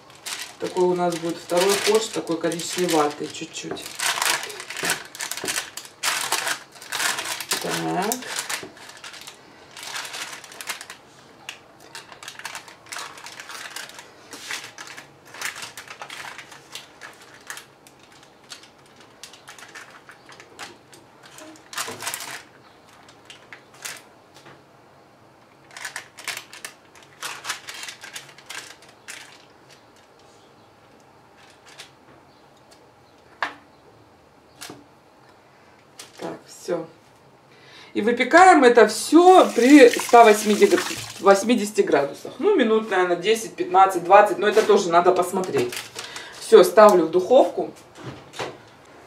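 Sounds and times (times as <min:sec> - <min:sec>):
baking parchment rustling: 0:00.0 - 0:24.4, 0:25.6 - 0:32.0, 0:38.9 - 0:42.0, 0:43.8 - 0:48.1.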